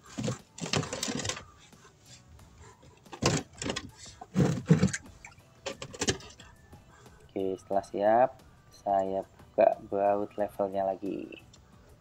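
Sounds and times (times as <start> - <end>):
plastic tub knocking and thumping: 3.2 - 5.0
plastic tub scraping on ground: 3.2 - 5.0.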